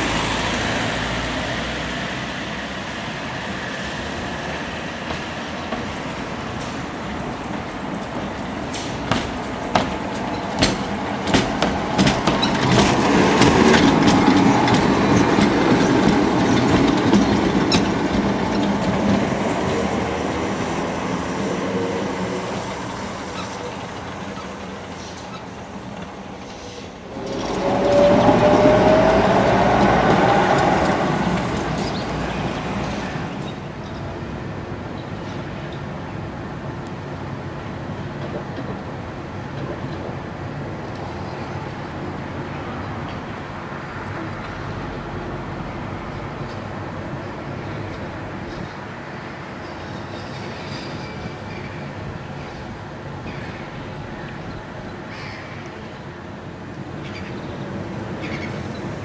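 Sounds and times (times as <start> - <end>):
tram rumbling past: 0.0 - 59.0
tram whine: 0.0 - 59.0
wheels clicking over rail joints: 5.0 - 20.5, 22.6 - 34.0.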